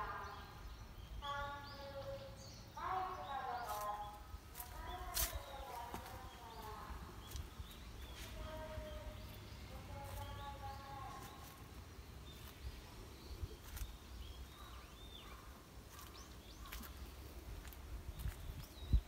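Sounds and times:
small birds chirping: 0:00.0 - 0:19.0
footsteps on dry leaves: 0:03.6 - 0:18.8.

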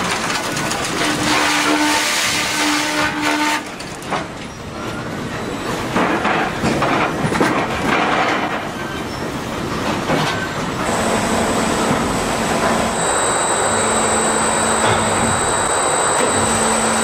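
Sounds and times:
sawmill machinery clattering: 0:09.9 - 0:17.0
thin high whine: 0:10.9 - 0:17.0.

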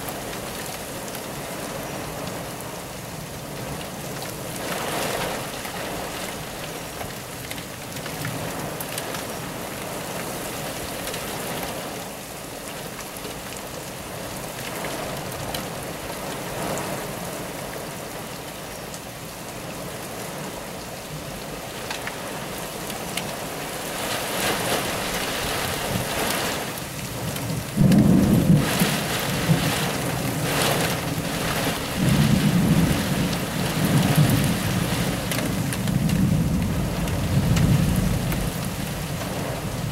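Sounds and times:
rain beating on window glass: 0:00.0 - 0:39.9
thunder rumble: 0:27.2 - 0:39.9.

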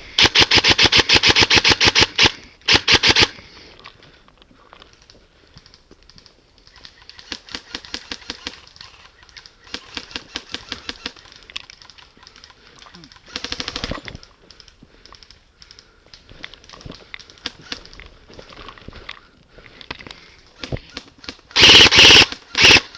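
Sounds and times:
distant airsoft fire bursts: 0:00.0 - 0:03.4, 0:07.2 - 0:11.4, 0:13.2 - 0:14.0, 0:20.6 - 0:22.9
airsoft gun firing: 0:00.2 - 0:03.4, 0:21.5 - 0:22.9.

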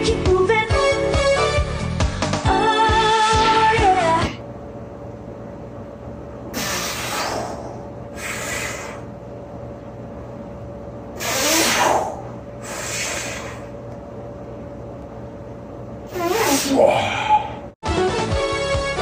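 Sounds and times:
low electrical hum: 0:00.0 - 0:17.8
man breathing heavily: 0:06.6 - 0:09.2, 0:11.2 - 0:13.8, 0:16.2 - 0:17.8.

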